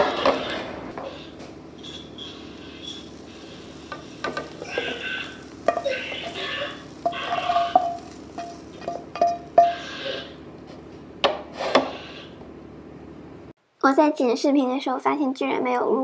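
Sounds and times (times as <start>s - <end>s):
spatula scraping wok: 0.0s - 12.4s
spatula knocking on pan: 7.0s - 9.8s.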